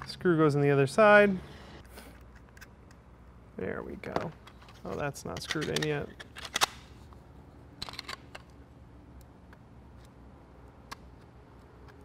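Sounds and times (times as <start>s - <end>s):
hard plastic parts clicking: 4.1s - 6.8s.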